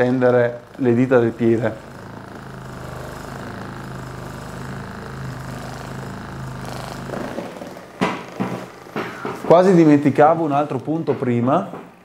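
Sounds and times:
massage gun buzzing: 0:00.0 - 0:12.0.

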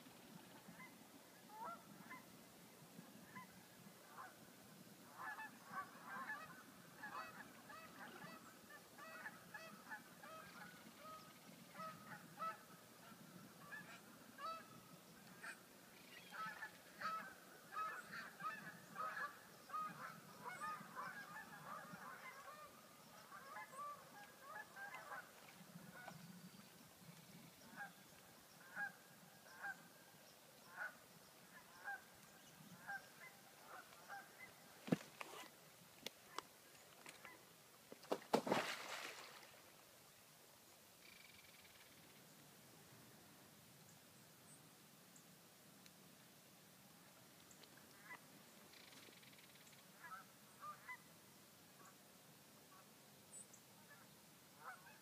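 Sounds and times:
flock of waterfowl calling: 0:01.5 - 0:02.3, 0:05.1 - 0:26.2, 0:28.6 - 0:29.9, 0:30.6 - 0:32.1, 0:47.9 - 0:51.0, 0:54.6 - 0:55.0.

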